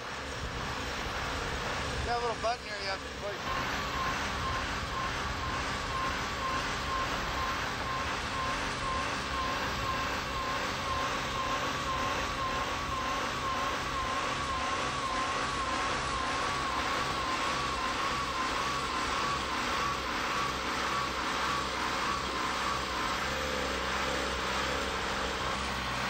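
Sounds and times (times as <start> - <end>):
truck engine running: 0.0 - 26.0
wavering high whine: 0.0 - 26.0.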